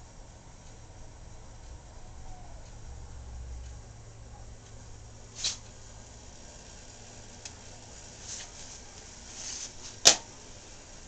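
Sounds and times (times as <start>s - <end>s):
steady low hiss: 0.0s - 11.0s
sharp click: 10.0s - 10.3s.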